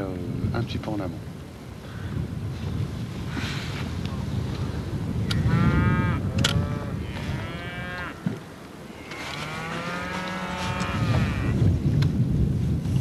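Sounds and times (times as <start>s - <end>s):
low wind noise: 0.0s - 13.0s
cattle mooing: 5.3s - 8.3s, 8.9s - 11.6s.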